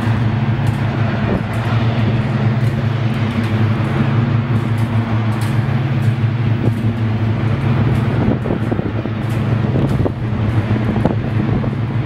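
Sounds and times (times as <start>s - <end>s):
constant rushing noise: 0.0s - 12.0s
low motor hum: 0.0s - 12.0s.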